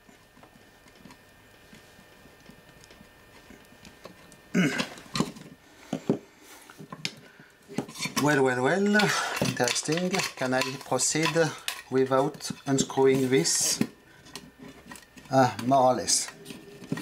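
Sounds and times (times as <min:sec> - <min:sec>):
screwdriver handling noise: 0:06.8 - 0:17.0.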